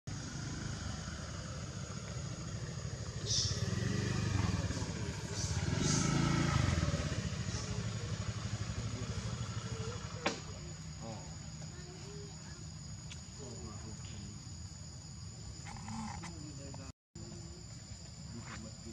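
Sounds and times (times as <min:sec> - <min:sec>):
vehicle engine rumble: 0:00.1 - 0:18.9
thin steady high tone: 0:06.7 - 0:18.9.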